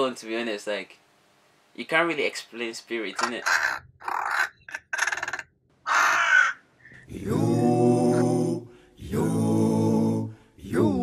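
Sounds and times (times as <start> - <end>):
low voice singing: 7.0 - 11.0.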